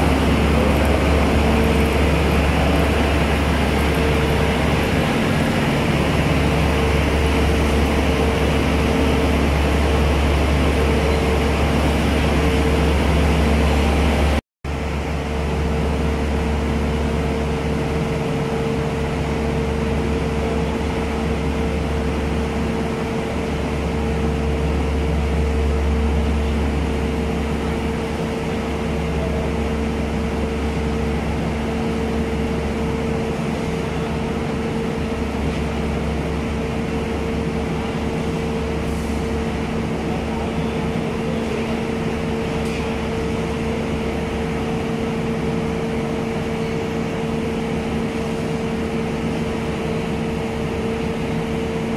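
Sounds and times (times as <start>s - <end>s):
diesel train engines idling: 0.0s - 51.9s.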